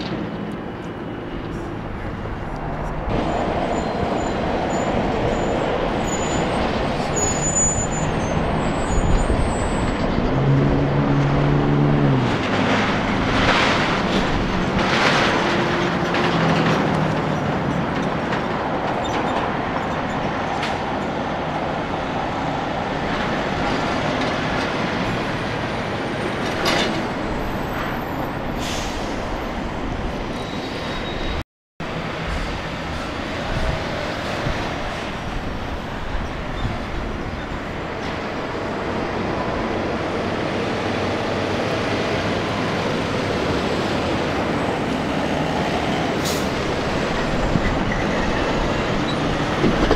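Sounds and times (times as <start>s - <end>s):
road traffic noise: 0.0s - 49.9s
air brake hisses: 28.6s - 29.3s.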